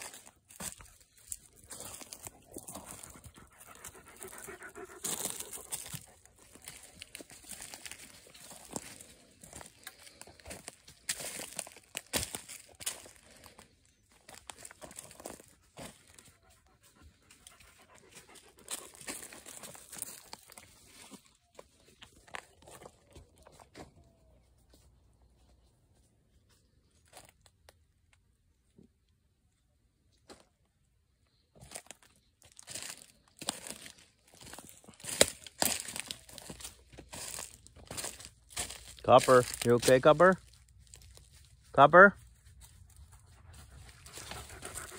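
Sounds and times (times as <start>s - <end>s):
crunching and rustling: 0.0s - 16.4s, 17.5s - 24.3s, 31.4s - 44.9s
dog panting: 1.9s - 7.6s, 15.9s - 20.0s, 43.0s - 44.9s.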